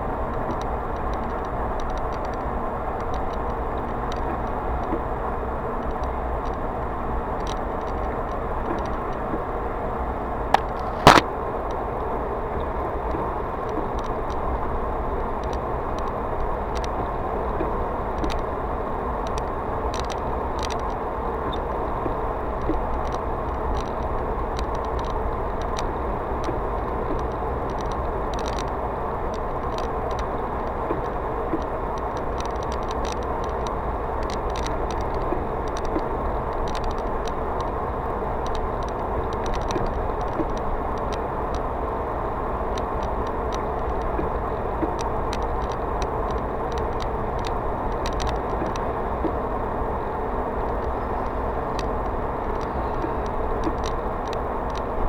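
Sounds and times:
car tyre and engine drone: 0:00.0 - 0:55.0
faint ticks: 0:00.2 - 0:05.1, 0:05.7 - 0:09.5, 0:10.5 - 0:49.5, 0:50.6 - 0:55.0
sharp clicks: 0:10.5 - 0:11.3.

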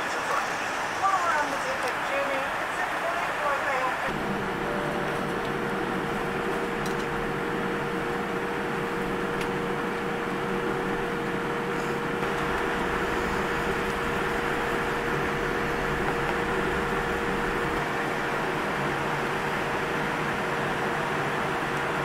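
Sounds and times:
airliner cabin rushing hum: 0:00.0 - 0:22.0
steady whine: 0:00.0 - 0:22.0.

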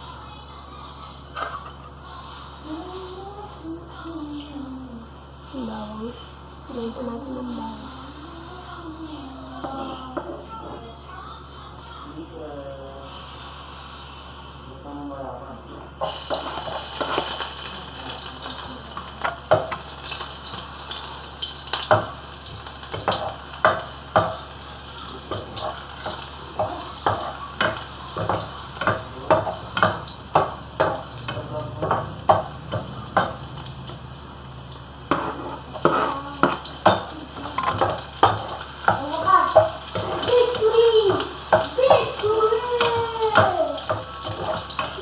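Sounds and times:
food sizzling in a pan: 0:00.0 - 0:04.5, 0:06.5 - 0:10.2, 0:16.0 - 0:45.0
metal spoon scraping a pan: 0:16.3 - 0:17.6, 0:25.3 - 0:33.4, 0:35.1 - 0:45.0.

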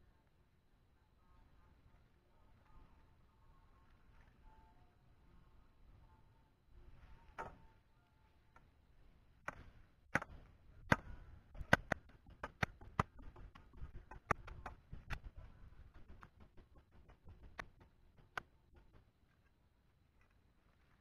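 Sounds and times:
handling clicks and taps: 0:09.5 - 0:19.1.

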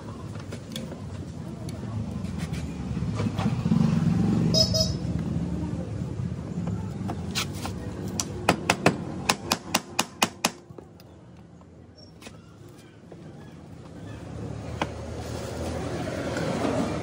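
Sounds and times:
low rumble of street traffic: 0:00.0 - 0:17.0.

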